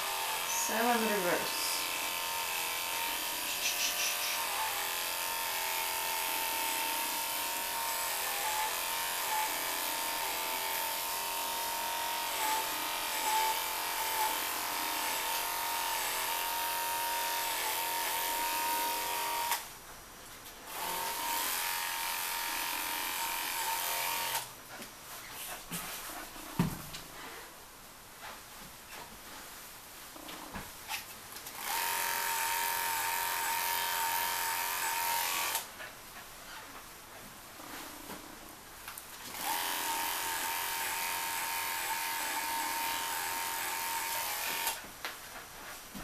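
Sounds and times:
electric clippers humming: 0:00.0 - 0:19.7, 0:20.7 - 0:24.5, 0:31.5 - 0:35.7, 0:39.3 - 0:44.8.

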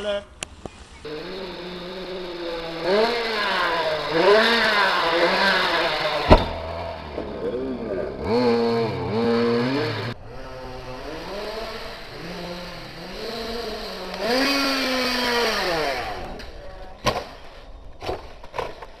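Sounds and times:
toy car motor revving: 0:01.0 - 0:06.9, 0:07.8 - 0:16.5.

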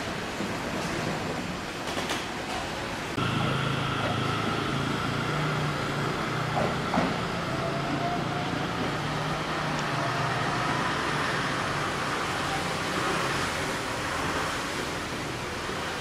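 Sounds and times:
electric train motors humming: 0:03.0 - 0:13.5.

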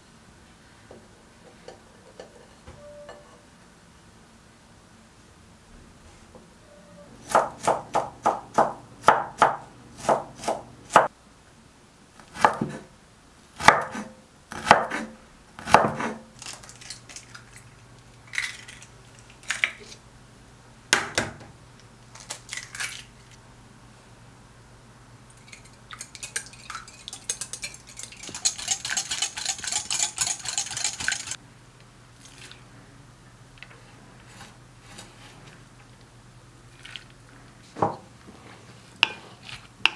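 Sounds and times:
eggs beaten in glass bowl: 0:25.4 - 0:31.4.

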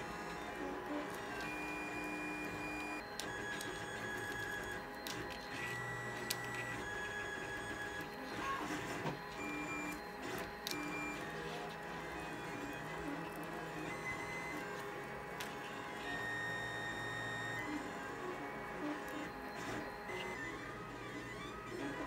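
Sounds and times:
stepper motors whining: 0:00.0 - 0:22.0.

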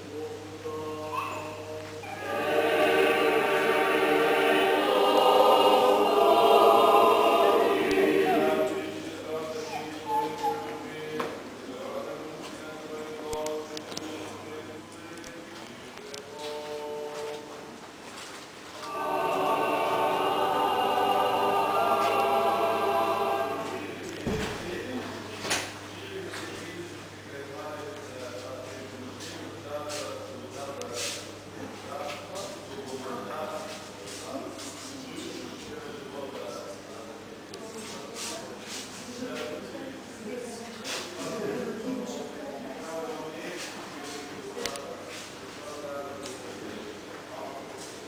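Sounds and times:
choir singing a chant: 0:00.6 - 0:10.6, 0:18.8 - 0:25.1.

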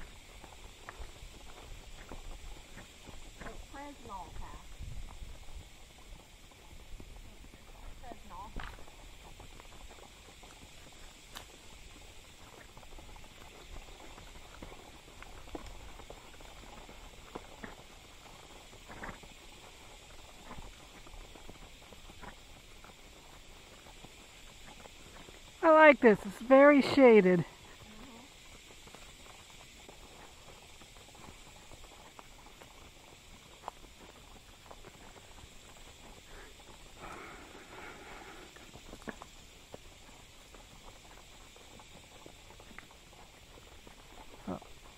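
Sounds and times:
faint hiss: 0:00.0 - 0:44.9
horse hooves on leaves and twigs: 0:00.0 - 0:44.9.

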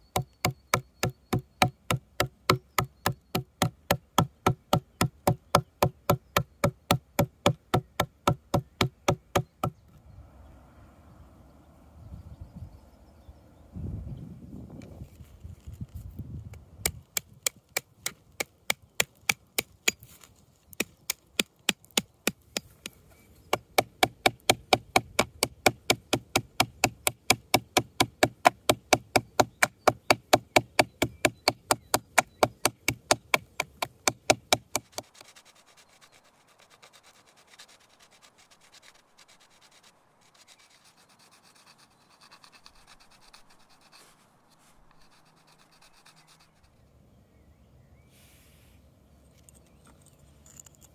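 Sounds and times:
adze chopping wood: 0:00.0 - 0:09.8, 0:16.8 - 0:20.0, 0:20.7 - 0:35.3
blade rubbing on whetstone: 0:34.9 - 0:46.8.

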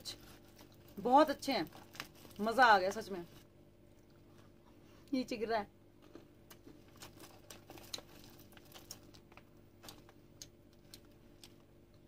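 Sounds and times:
plastic snack packet crinkling: 0:00.0 - 0:03.4, 0:06.5 - 0:11.7.

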